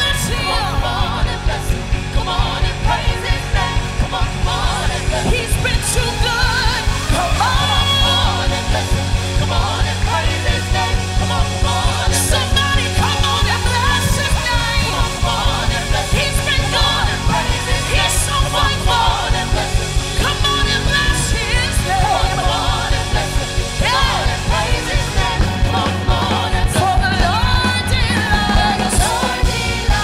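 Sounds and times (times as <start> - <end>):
band with driving beat: 0.0 - 30.0
voices singing gospel song: 0.0 - 30.0.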